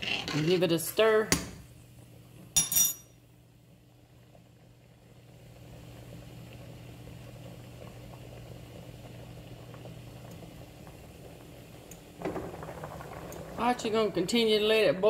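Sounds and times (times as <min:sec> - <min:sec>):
water bubbling at a boil: 0:03.6 - 0:15.0.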